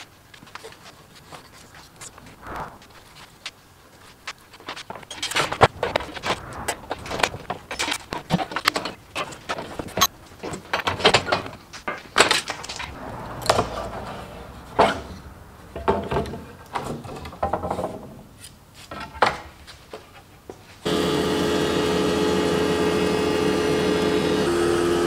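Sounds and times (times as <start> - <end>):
thickness planer running hum: 20.9 - 25.0.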